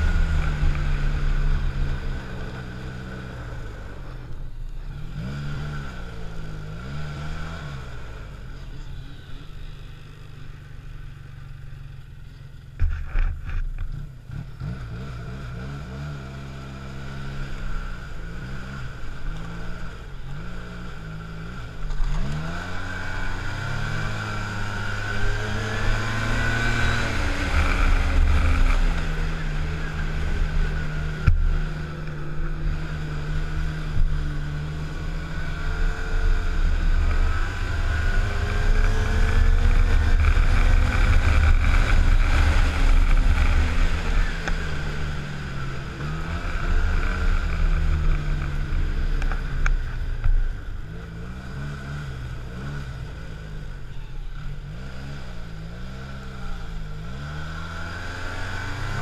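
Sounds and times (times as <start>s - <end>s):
snowmobile engine revving: 21.3s - 50.3s.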